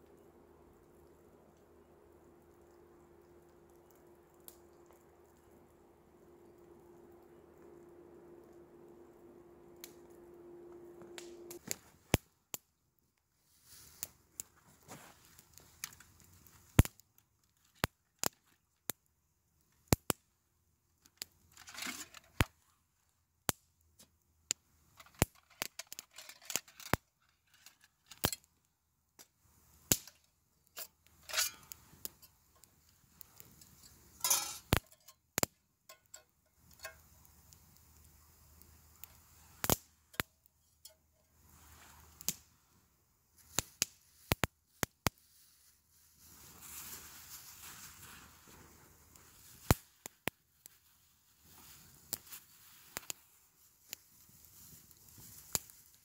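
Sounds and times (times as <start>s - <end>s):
campfire popping and snapping: 0.0s - 22.7s, 23.4s - 56.0s
rustling: 13.4s - 16.8s, 43.3s - 56.0s.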